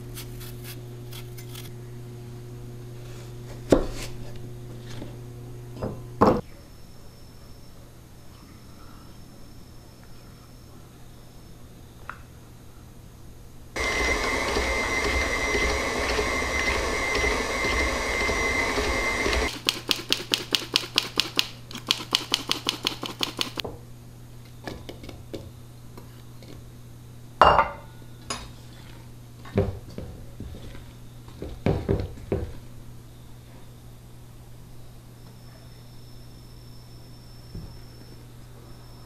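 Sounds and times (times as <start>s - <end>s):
stand mixer whining: 13.8s - 19.5s.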